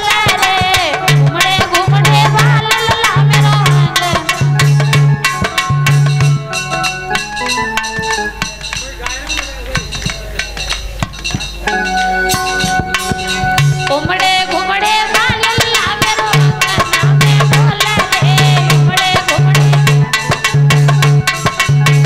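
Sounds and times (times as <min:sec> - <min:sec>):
woman singing folk song: 0:00.0 - 0:04.4, 0:13.9 - 0:19.9
hand drum strokes: 0:00.0 - 0:22.0.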